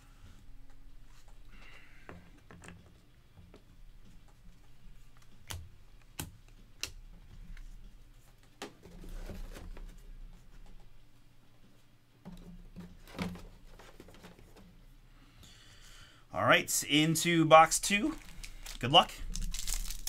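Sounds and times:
cards rustling and tapping: 17.9 - 20.0.

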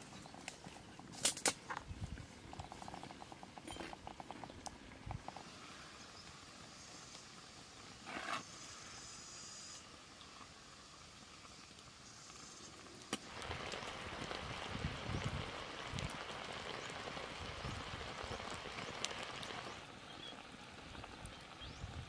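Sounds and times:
fish sizzling on a grill: 0.0 - 22.0.

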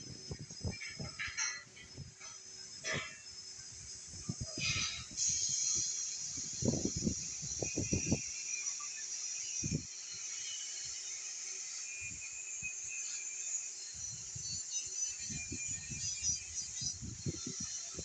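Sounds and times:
high-pitched hiss: 0.0 - 18.0.

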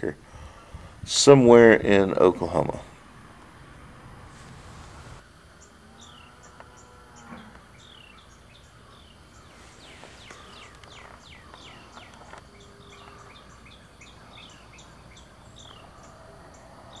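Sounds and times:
birds chirping: 4.9 - 17.0.

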